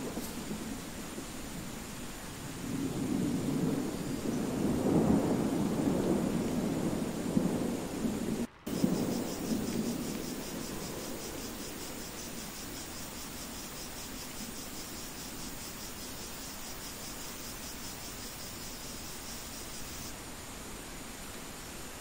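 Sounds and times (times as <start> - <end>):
low thunder rumble: 0.0 - 20.1
steady rain hiss: 0.0 - 22.0
high insect trill: 0.1 - 20.1.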